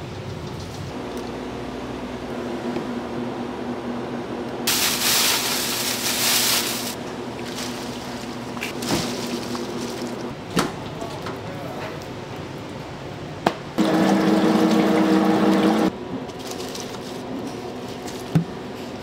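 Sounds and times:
kitchen equipment hum: 0:00.0 - 0:11.4, 0:13.8 - 0:19.0
cabbage hissing in hot pan: 0:04.7 - 0:07.0.

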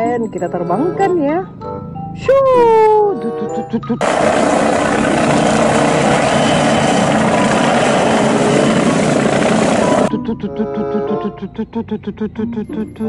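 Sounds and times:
background music: 0:00.0 - 0:13.0
helicopter rotor and engine: 0:04.0 - 0:10.1.

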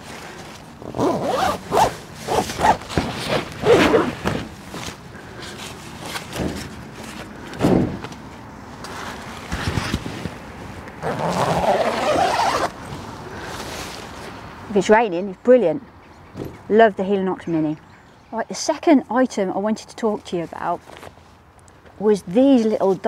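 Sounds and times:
tent fabric rustling: 0:00.0 - 0:14.4
tent zip being pulled: 0:00.8 - 0:04.5, 0:11.0 - 0:12.8.

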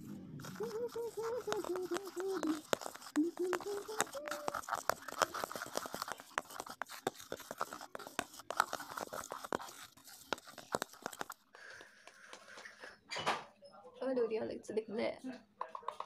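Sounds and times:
brush scraping mixture in plastic tub: 0:00.0 - 0:12.6.

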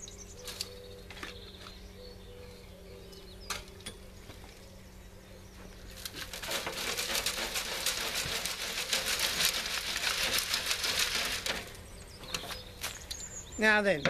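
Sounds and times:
soil rattling through a sieve: 0:05.9 - 0:13.0.

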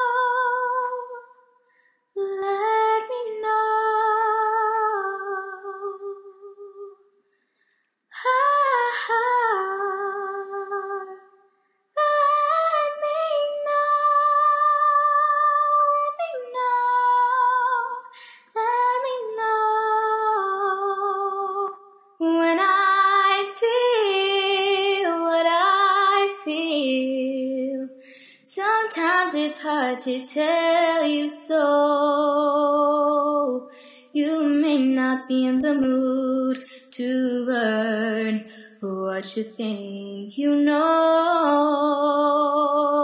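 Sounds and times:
woman singing unaccompanied: 0:12.0 - 0:43.0.

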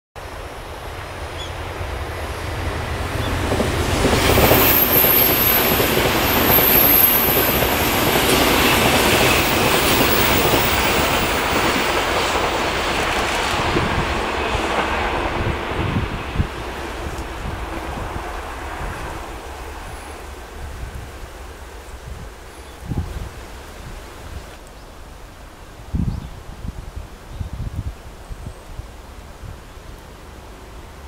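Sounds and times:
train wheels rumbling on rails: 0:00.2 - 0:24.6
high-pitched squeal: 0:01.2 - 0:11.1.

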